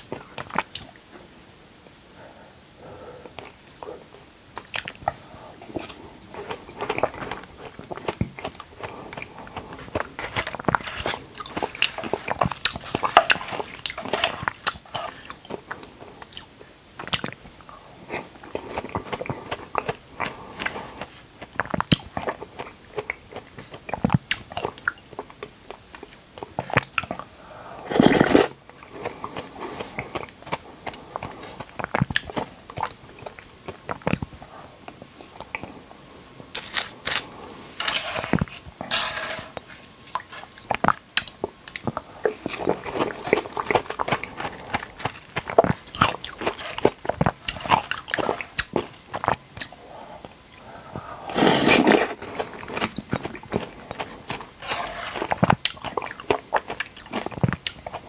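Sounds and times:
biting and chewing: 4.6s - 17.4s, 40.1s - 49.7s, 51.3s - 58.0s.

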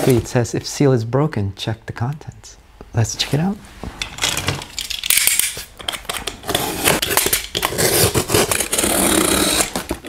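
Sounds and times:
blade cutting tape on cardboard: 6.4s - 10.0s.

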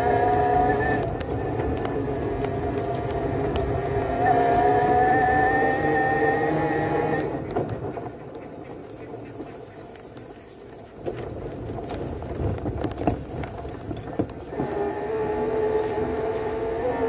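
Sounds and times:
van frame rattling over bumps: 10.9s - 16.7s.

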